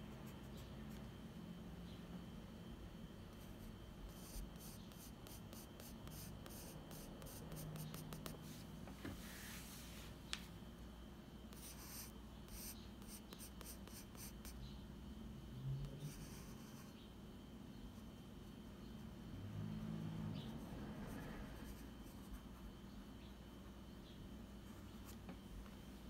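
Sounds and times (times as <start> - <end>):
pencil scratching on paper: 3.4 - 8.6, 11.5 - 14.6, 16.0 - 16.9.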